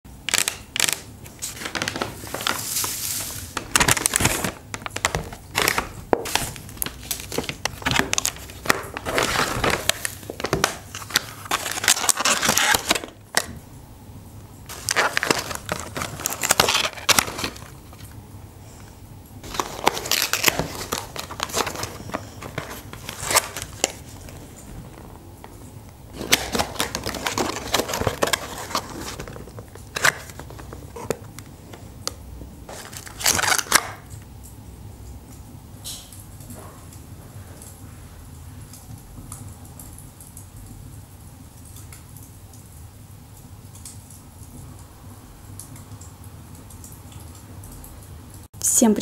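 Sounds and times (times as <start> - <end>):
foil lids crinkling: 0.2 - 13.6, 14.7 - 18.2, 19.4 - 34.1
paper bag rustling: 0.3 - 13.6, 14.7 - 18.2, 19.4 - 31.8, 32.7 - 34.0
paper boxes being unfolded: 0.3 - 13.6, 14.7 - 18.0, 19.4 - 25.1, 26.1 - 31.5, 32.7 - 34.0.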